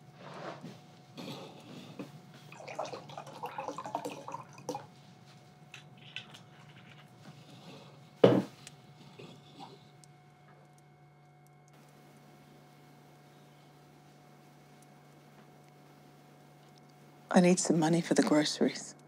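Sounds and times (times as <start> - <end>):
wine pouring into glass: 2.5 - 4.9
bottle knocking on wooden table: 8.2 - 8.5.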